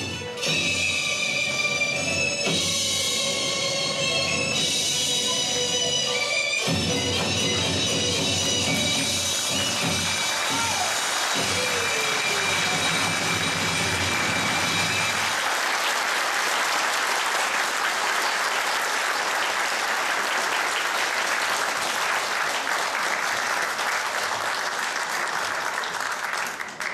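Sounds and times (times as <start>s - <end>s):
dance music: 4.7s - 15.3s
audience applauding: 9.0s - 26.9s.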